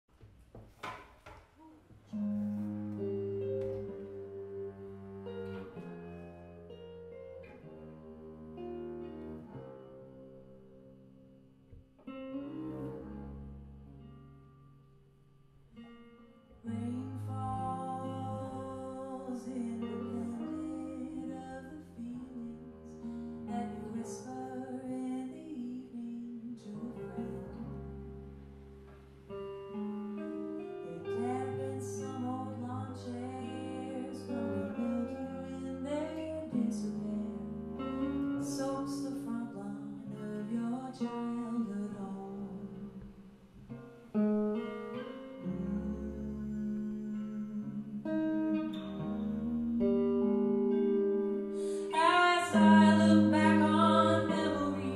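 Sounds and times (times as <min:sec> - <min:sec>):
clean electric guitar chords: 0:02.1 - 0:54.9
woman singing: 0:16.6 - 0:28.0, 0:30.1 - 0:43.1, 0:45.4 - 0:54.9.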